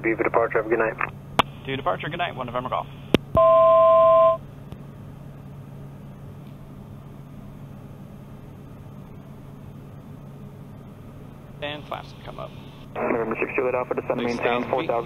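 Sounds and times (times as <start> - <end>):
turboprop engine drone: 4.4 - 15.0.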